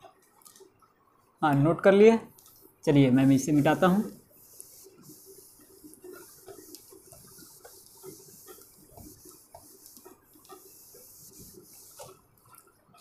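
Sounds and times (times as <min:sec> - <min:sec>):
eraser rubbing on board: 0:03.2 - 0:12.6.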